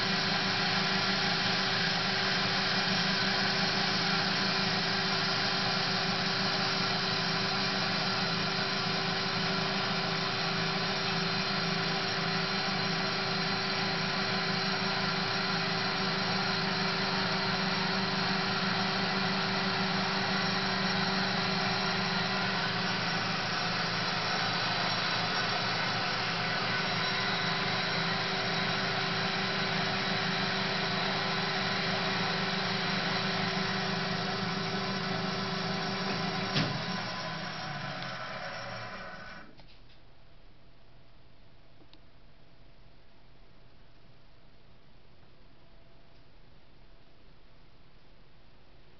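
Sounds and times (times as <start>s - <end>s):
bandsaw machine humming: 0.0s - 39.6s.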